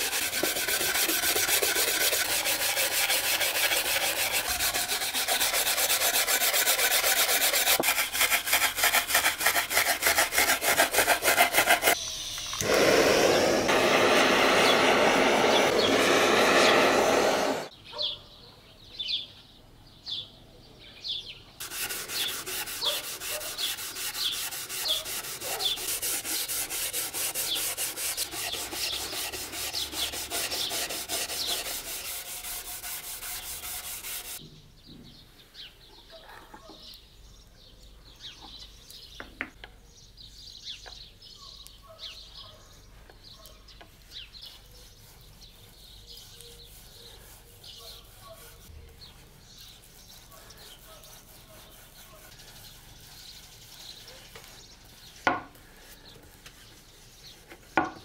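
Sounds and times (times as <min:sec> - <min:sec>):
abrasive pad rasping on wood: 0:00.0 - 0:12.0, 0:12.6 - 0:17.7, 0:21.6 - 0:34.4
birds chirping: 0:12.8 - 0:21.4
hand rubbing on wood: 0:21.6 - 0:34.4, 0:44.5 - 0:53.9.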